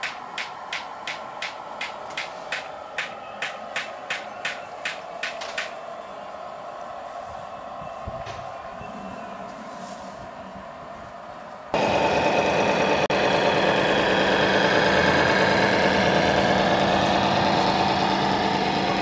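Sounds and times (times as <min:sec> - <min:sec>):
diesel engine idling through small speaker: 0:11.8 - 0:19.0.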